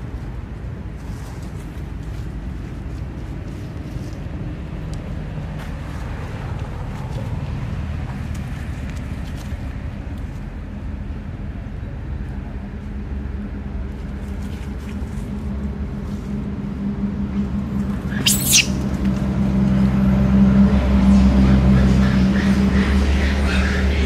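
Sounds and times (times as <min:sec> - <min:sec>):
high wavering squeal: 0:18.1 - 0:18.8.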